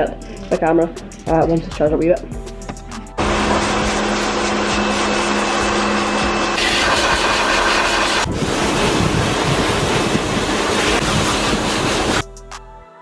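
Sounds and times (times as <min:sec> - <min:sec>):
pressure washer spraying water: 0:03.2 - 0:12.3.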